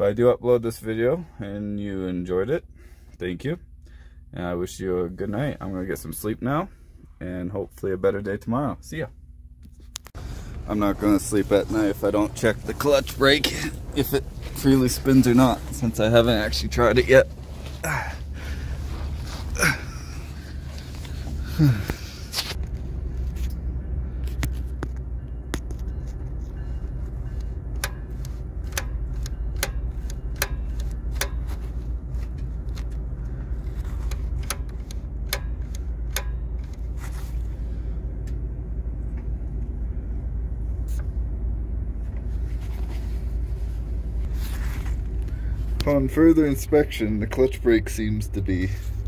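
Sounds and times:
diesel engine idling: 0:10.2 - 0:49.0.

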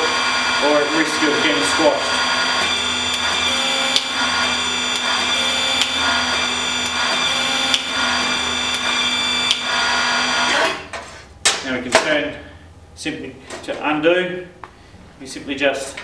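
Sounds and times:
hydraulic pump humming: 0:00.0 - 0:11.0.

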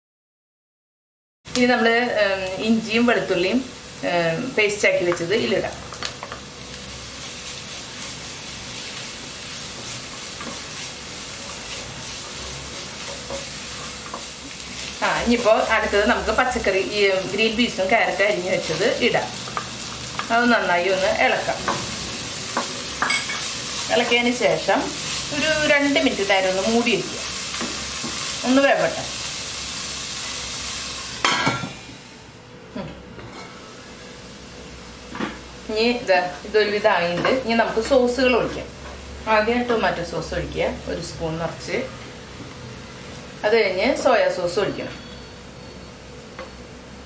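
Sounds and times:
food sizzling in hot oil: 0:01.5 - 0:32.4.

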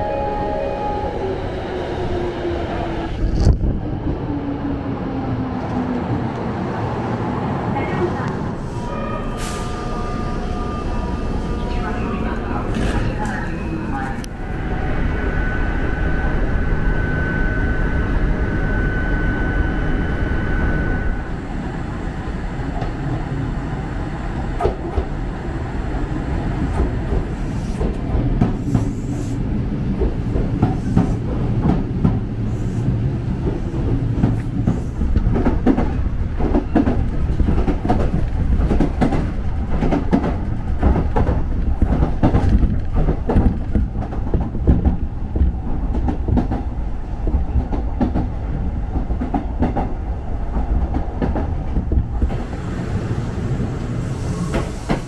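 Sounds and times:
steady high tone: 0:00.0 - 0:02.2
electric train rumbling: 0:00.0 - 0:55.0
train wheels clacking on rail joints: 0:33.4 - 0:48.3.

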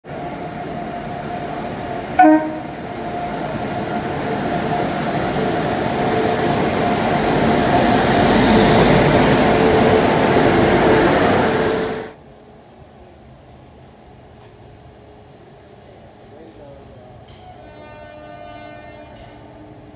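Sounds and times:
passing train running noise: 0:00.0 - 0:19.9
train horn toot: 0:02.2 - 0:02.8, 0:17.4 - 0:19.8.

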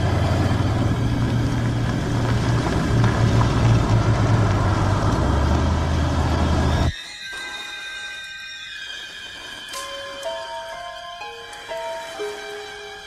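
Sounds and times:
car engine rumble: 0:00.0 - 0:06.9
tyres on dirt road: 0:00.0 - 0:13.0.

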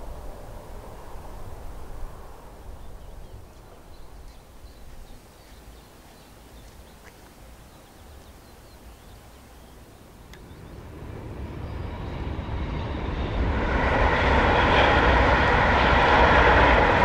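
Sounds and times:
wind rumbling on microphone: 0:00.0 - 0:17.0
small birds chirping: 0:02.2 - 0:12.3.

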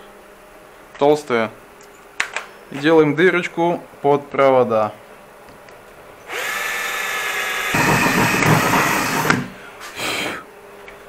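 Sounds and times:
drill bit cutting sheet steel: 0:06.3 - 0:09.6.

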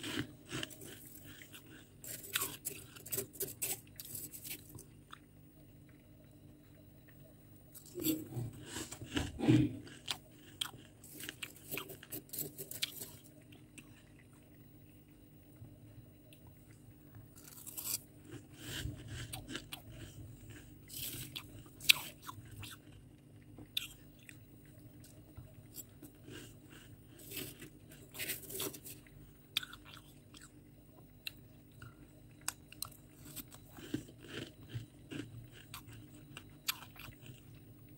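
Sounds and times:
crisp squeaky chewing crunches: 0:00.0 - 0:04.8, 0:09.9 - 0:13.2, 0:17.4 - 0:18.4, 0:25.0 - 0:29.0, 0:32.4 - 0:37.6.

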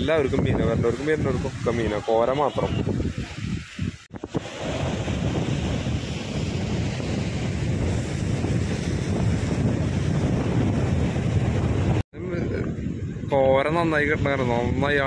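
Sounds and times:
wind buffeting microphone: 0:00.0 - 0:15.0
sea waves against rocks: 0:00.1 - 0:12.0.

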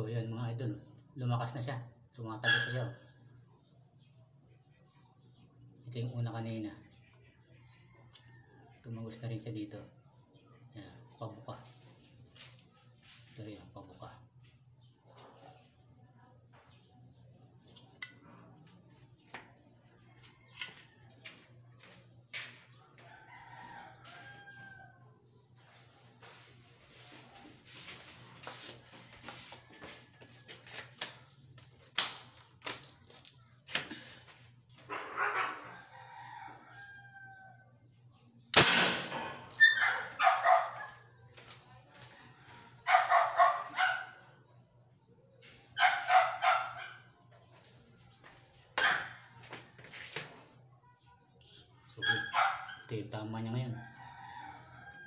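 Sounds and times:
rooster crowing: 0:23.0 - 0:25.0, 0:35.2 - 0:37.7, 0:53.8 - 0:55.0
toy gun loud crack: 0:38.5 - 0:39.6.

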